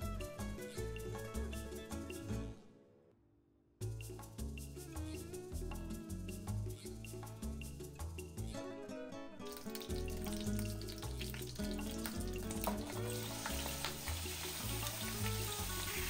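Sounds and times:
background music: 0.0 - 3.1, 3.8 - 16.0
ghee sizzling in frying pan: 9.5 - 16.0.

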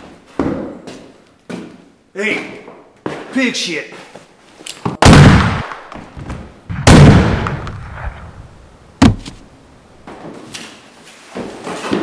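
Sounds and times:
gunshots: 5.0 - 9.2
sharp crack: 5.0 - 9.5.

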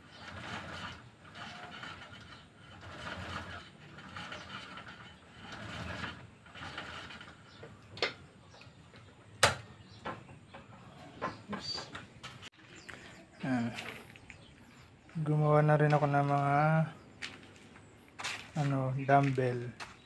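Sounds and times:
gym pulleys running: 0.0 - 9.2.

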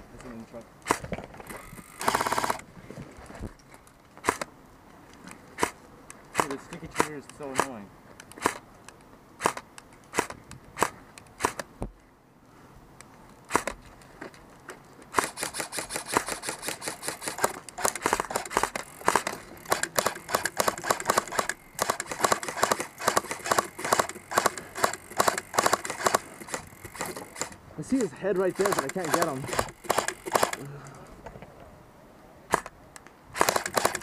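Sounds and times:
airsoft guns firing: 2.0 - 2.6, 5.6 - 7.8, 15.1 - 27.6, 28.4 - 30.7, 33.4 - 34.0.

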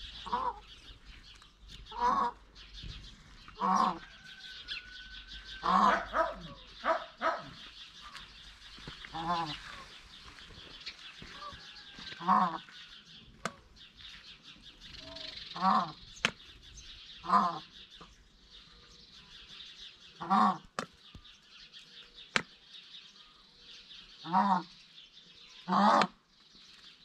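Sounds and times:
peafowl honking calls: 0.0 - 1.1, 1.8 - 13.7, 17.2 - 17.8, 20.2 - 20.8.

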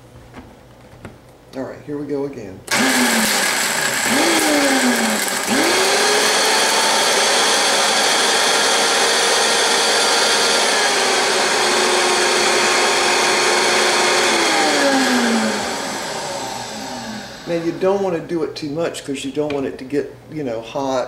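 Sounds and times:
blender motor grinding: 2.7 - 17.7.

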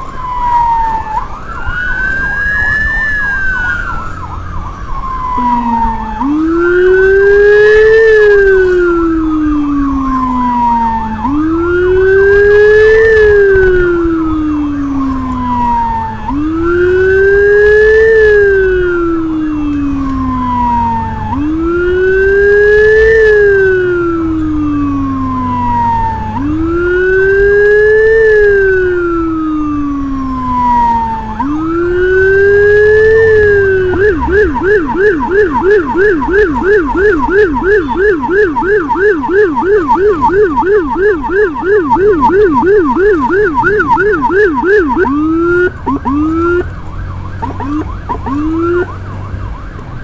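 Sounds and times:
siren wailing: 0.0 - 50.0
siren yelp: 0.0 - 50.0.

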